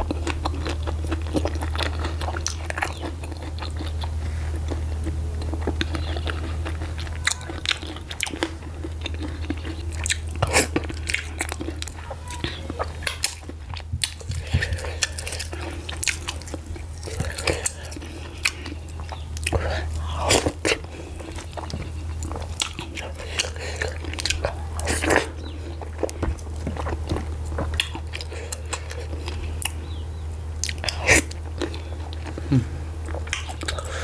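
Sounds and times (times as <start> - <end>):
wet chewing and lip smacks: 0.0 - 32.4, 33.0 - 34.0
steady low hum: 0.0 - 34.0.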